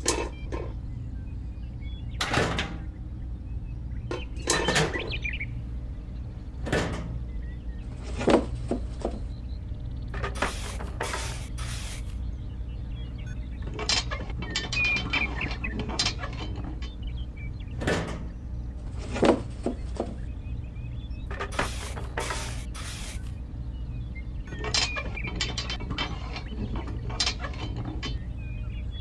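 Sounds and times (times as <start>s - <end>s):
steady low hum: 9.2s - 13.6s, 20.2s - 24.5s
short hissing bursts: 10.4s - 12.2s, 21.5s - 23.3s.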